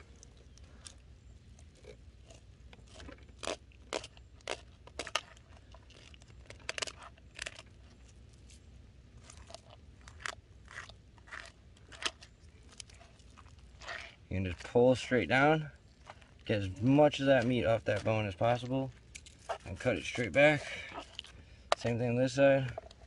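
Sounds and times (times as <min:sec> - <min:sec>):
knife crunching through fish bones: 0:01.7 - 0:08.6, 0:09.2 - 0:14.7, 0:17.2 - 0:21.8.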